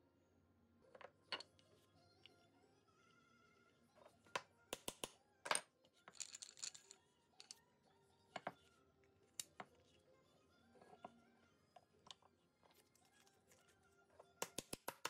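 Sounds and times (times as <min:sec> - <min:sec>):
wooden toy parts clicking: 0:04.8 - 0:07.6, 0:14.4 - 0:15.0.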